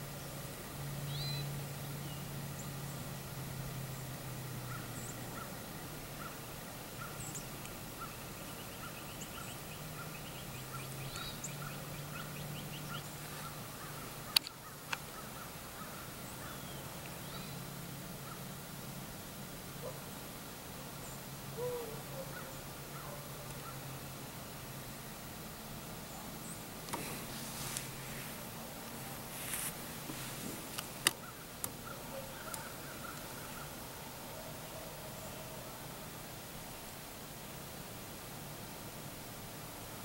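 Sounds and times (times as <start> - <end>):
birds chirping: 3.9 - 18.5, 26.0 - 35.8
sharp clicks near microphone: 14.3 - 15.1.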